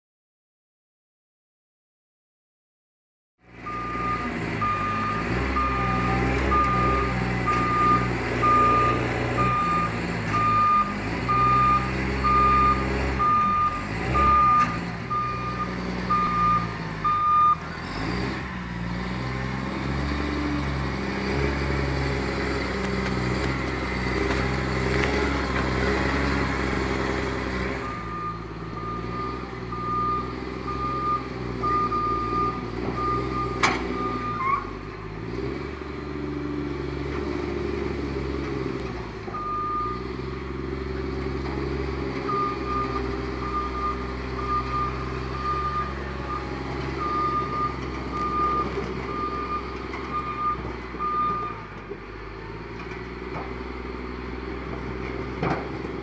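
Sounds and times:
diesel engine running: 3.4 - 56.0
reversing alarm beeping: 3.6 - 17.6, 27.8 - 34.6, 39.4 - 40.0, 42.3 - 51.6.

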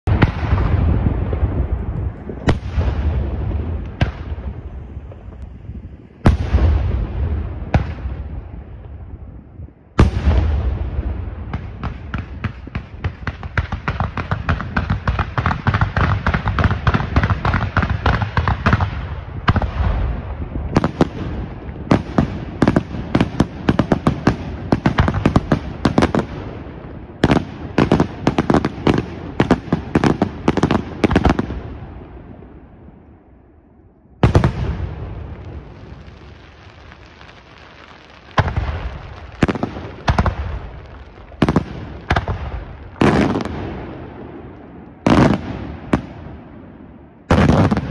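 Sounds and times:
firework barrage crackling: 0.0 - 47.9
rumbling echo: 0.1 - 14.5.

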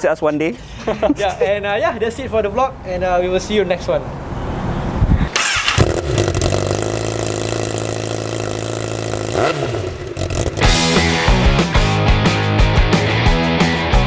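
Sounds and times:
motorcycle engine revving: 5.3 - 11.9
rock music with guitar: 10.5 - 14.0.

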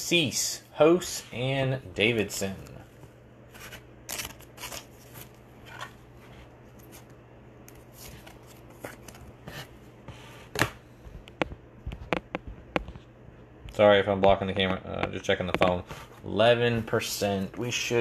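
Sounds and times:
cards rustling and sliding: 3.5 - 10.8.

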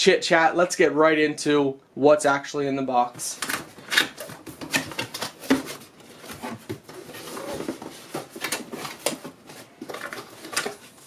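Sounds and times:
cardboard box being opened: 3.6 - 11.0.

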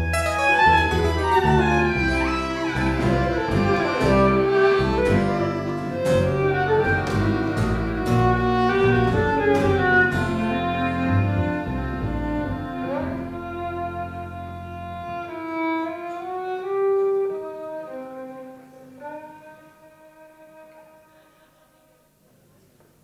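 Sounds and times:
acoustic guitar: 0.0 - 15.7
double bass: 0.0 - 19.3
accordion: 0.0 - 21.7
violins: 0.0 - 22.0.

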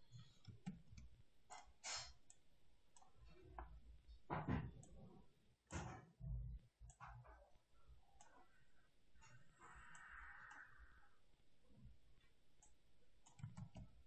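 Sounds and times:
computer mouse clicks: 0.2 - 3.7, 9.2 - 10.7, 12.6 - 14.0.

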